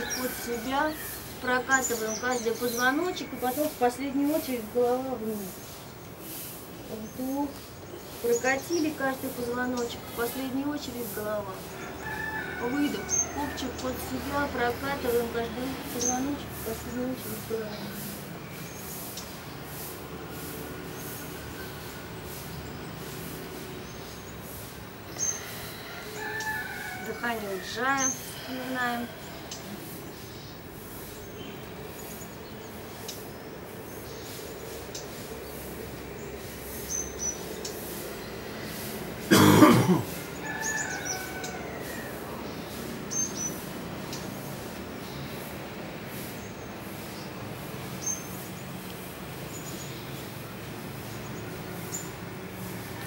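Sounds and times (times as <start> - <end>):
small birds chirping: 0.0 - 53.0.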